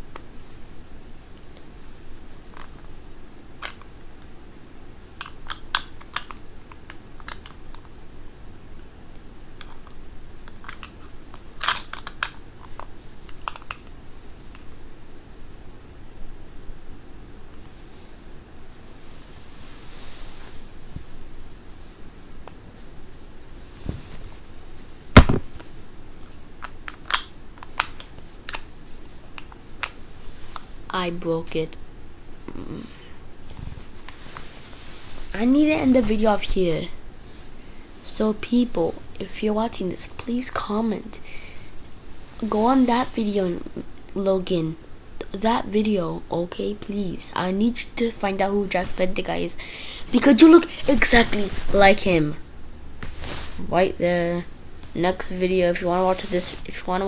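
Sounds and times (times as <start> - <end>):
microphone handling noise: 23.7 - 24.4.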